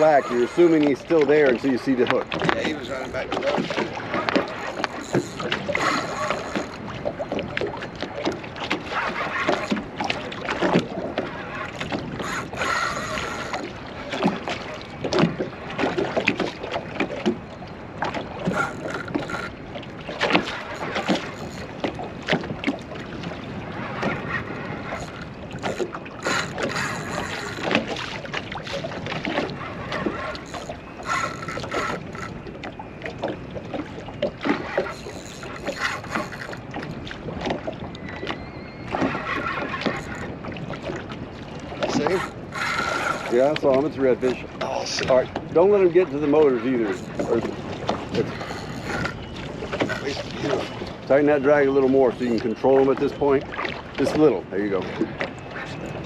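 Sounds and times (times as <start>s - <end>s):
fishing reel cranking: 0.0s - 7.4s, 9.0s - 9.8s, 11.8s - 13.8s, 18.4s - 19.6s, 20.3s - 21.9s, 24.9s - 27.9s, 30.0s - 32.4s, 34.8s - 36.6s, 39.2s - 40.3s, 41.9s - 43.6s, 46.6s - 47.5s, 48.1s - 50.2s
waves slapping boat hull: 0.0s - 56.0s
wind: 0.0s - 56.0s.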